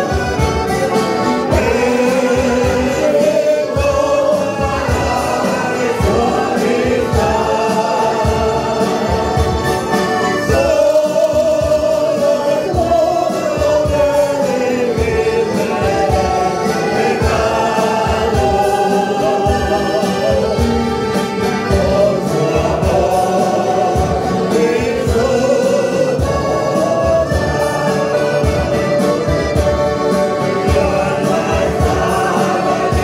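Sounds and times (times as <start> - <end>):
accordion: 0.0 - 33.0
choir singing a hymn: 0.0 - 33.0
strummed acoustic guitar: 0.0 - 33.0.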